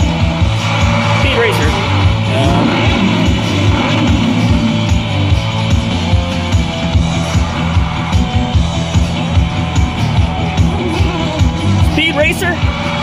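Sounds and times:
rock music with guitar and drums: 0.0 - 13.0.

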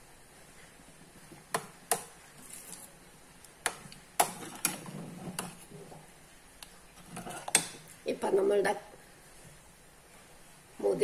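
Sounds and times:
porridge stirring: 1.2 - 8.0
metal spoon clinking on pot: 7.2 - 7.8.

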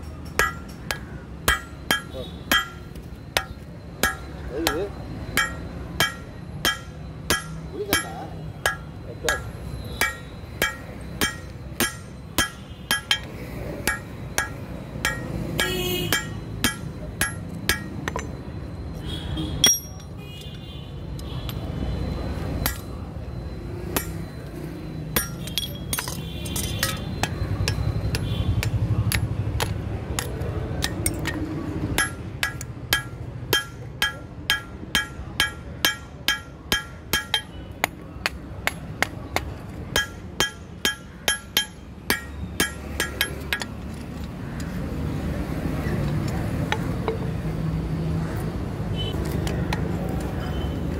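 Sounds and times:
hammer striking steel on anvil: 0.0 - 18.4, 19.6 - 20.2, 22.6 - 23.0, 23.9 - 24.4, 25.1 - 43.8.

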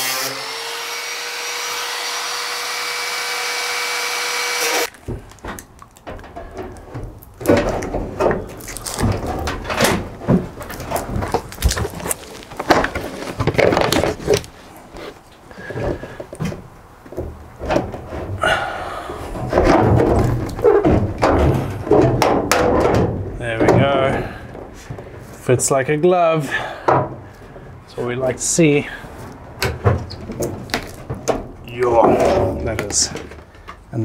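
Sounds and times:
angle grinder cutting metal: 0.0 - 4.9
metal knocks and rattles: 5.1 - 14.5, 19.3 - 25.1, 29.4 - 33.5.

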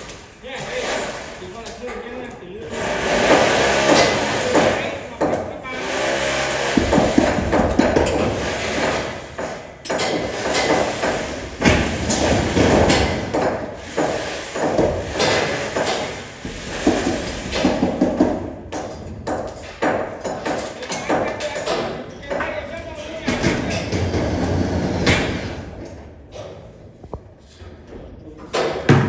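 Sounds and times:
knocks on steel roof frame: 6.5 - 22.5.

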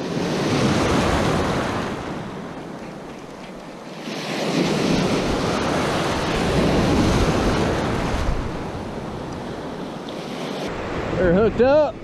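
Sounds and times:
surf breaking and rushing: 0.0 - 12.0
wind buffeting microphone: 4.2 - 10.0.

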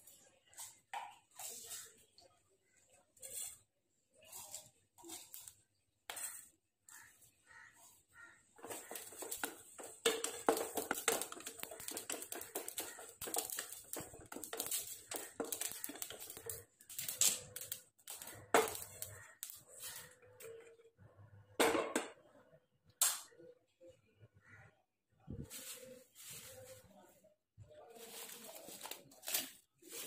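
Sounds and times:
wooden spatula stirring spices: 0.0 - 20.4, 28.0 - 30.0
seeds rattling in a pan: 8.6 - 20.1.

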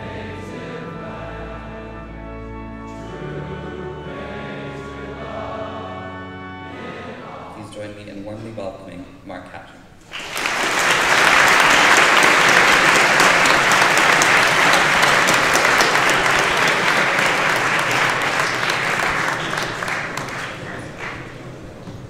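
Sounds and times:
audience applauding: 10.0 - 21.9.

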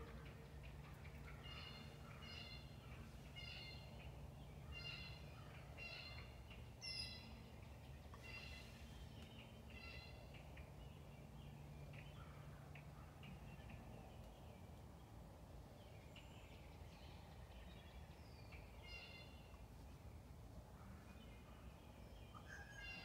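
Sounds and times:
wild turkeys calling softly: 0.0 - 11.0.

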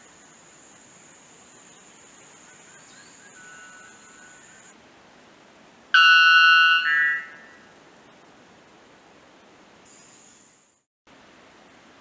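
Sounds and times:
bird ringing call: 6.0 - 7.6.

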